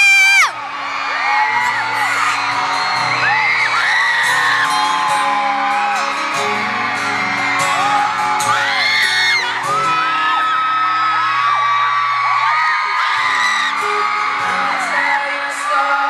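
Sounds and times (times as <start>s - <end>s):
acoustic guitar: 0.0s - 16.0s
fans screaming and whooping: 0.0s - 16.0s
man singing pop: 14.4s - 16.0s.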